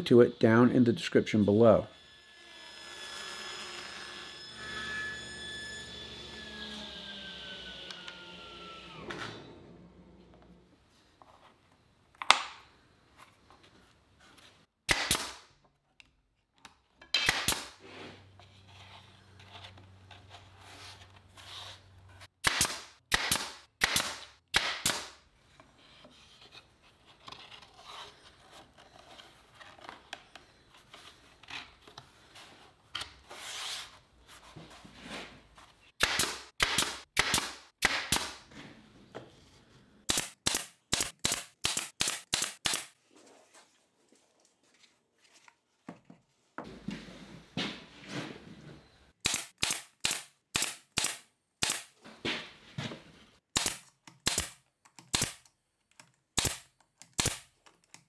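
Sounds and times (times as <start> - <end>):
pneumatic nailer firing: 14.9 - 15.4, 17.2 - 17.8, 22.4 - 25.2, 36.0 - 38.4, 40.1 - 42.9, 49.2 - 51.9, 53.6 - 55.4, 56.4 - 57.5.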